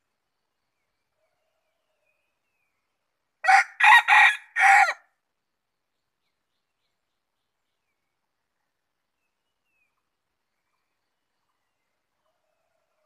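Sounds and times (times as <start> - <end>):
rooster crowing: 3.4 - 5.1.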